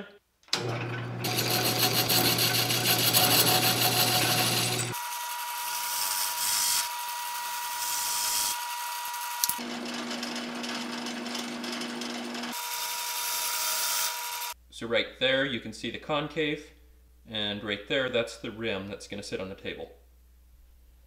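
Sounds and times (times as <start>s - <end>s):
lathe motor tone: 0.6s - 5.6s
lathe tool scraping wood: 1.2s - 12.6s.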